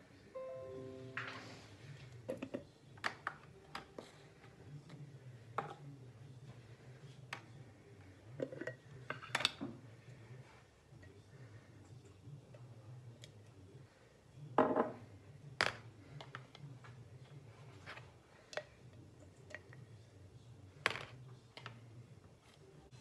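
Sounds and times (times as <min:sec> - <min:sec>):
low steady hum: 0:00.3 - 0:02.3.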